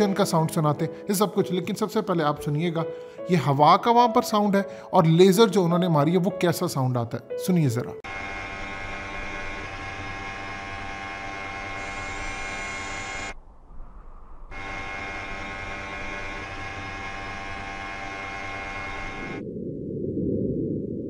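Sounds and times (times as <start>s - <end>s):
electric buzzing hum: 8.0s - 13.7s, 14.4s - 19.4s.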